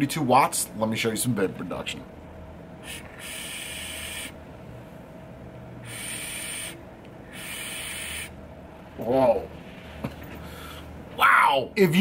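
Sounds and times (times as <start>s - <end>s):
airy hissing of vape draws: 2.8s - 4.4s, 5.8s - 8.3s.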